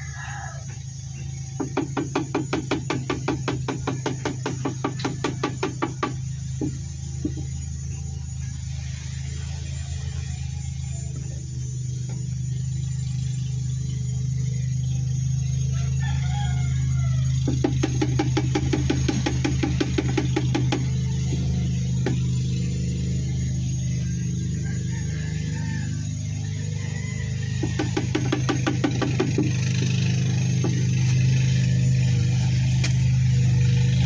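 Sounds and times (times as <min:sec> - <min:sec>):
low machine hum: 0:00.0 - 0:34.0
fast even knocking: 0:27.6 - 0:29.6.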